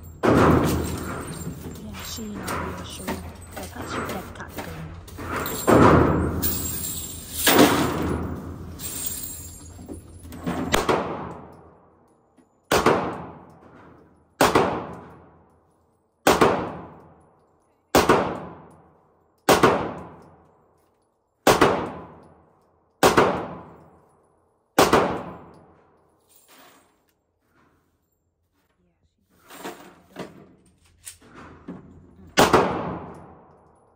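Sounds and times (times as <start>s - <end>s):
gunshots echoing indoors: 0.0s - 1.8s, 4.9s - 9.1s, 10.4s - 15.6s, 16.2s - 17.3s, 17.9s - 20.6s, 21.4s - 26.0s, 31.4s - 33.9s.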